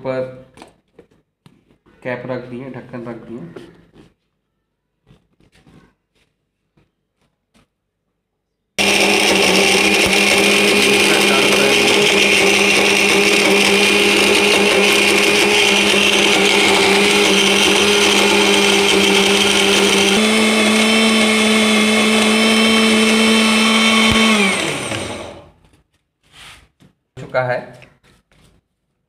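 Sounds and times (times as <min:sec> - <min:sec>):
mixer grinder running: 0:08.8 - 0:25.6.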